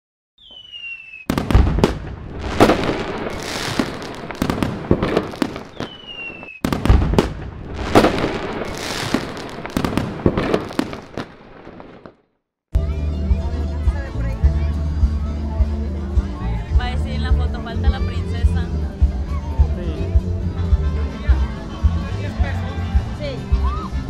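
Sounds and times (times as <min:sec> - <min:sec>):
firework rocket whistle: 0:00.4 - 0:06.8
firework bangs and crackling: 0:00.4 - 0:12.3.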